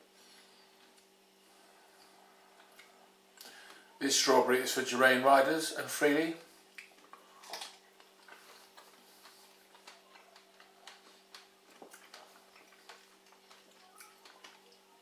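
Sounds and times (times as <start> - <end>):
low steady hum: 0.0 - 15.0
people chewing strawberries: 0.2 - 3.8, 6.5 - 15.0.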